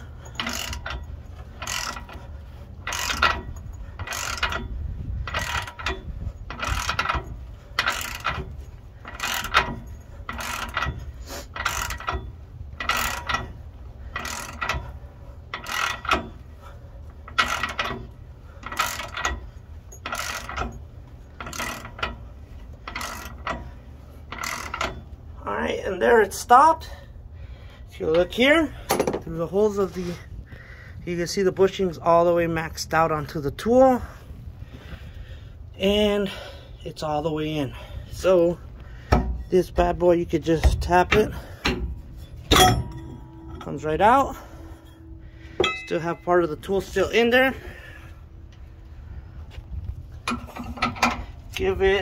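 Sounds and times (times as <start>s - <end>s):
ratchet wrench clicking: 0.0s - 16.4s, 17.3s - 25.2s.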